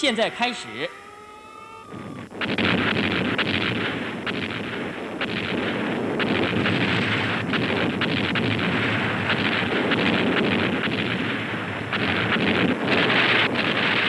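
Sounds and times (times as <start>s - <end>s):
siren falling tone: 0.0s - 4.2s
explosions and gunfire: 1.8s - 14.0s.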